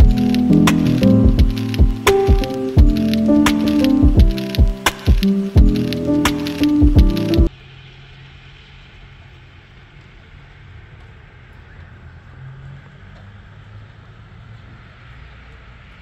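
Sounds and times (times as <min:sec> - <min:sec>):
low rumble: 0:00.0 - 0:10.9.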